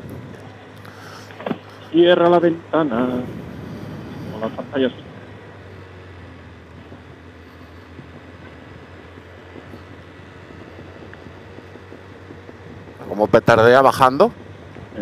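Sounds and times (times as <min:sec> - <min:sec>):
motorcycle exhaust popping: 0:00.0 - 0:15.0
riding noise: 0:00.0 - 0:15.0.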